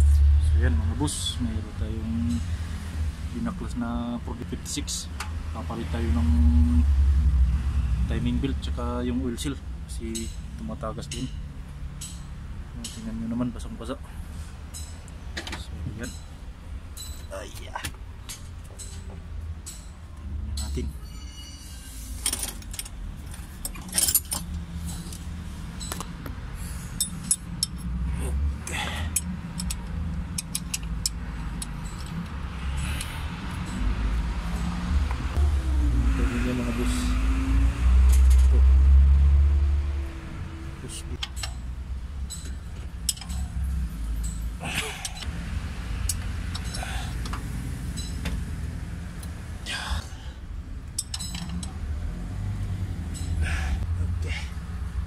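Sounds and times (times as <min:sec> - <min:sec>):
metallic clicks of tools: 0:12.0 - 0:13.2, 0:17.0 - 0:20.8, 0:27.0 - 0:28.0, 0:29.0 - 0:33.9, 0:41.2 - 0:45.3, 0:46.0 - 0:48.4, 0:50.8 - 0:51.8, 0:53.0 - 0:53.4.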